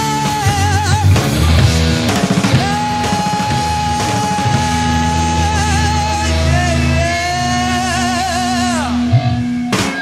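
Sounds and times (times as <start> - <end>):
rock music: 0.0 - 10.0.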